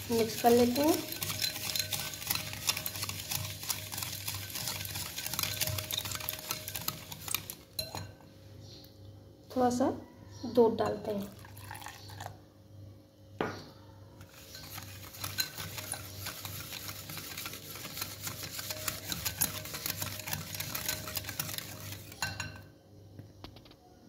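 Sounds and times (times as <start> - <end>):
whisk clinking in glass bowl: 0.0 - 8.2, 14.3 - 22.7.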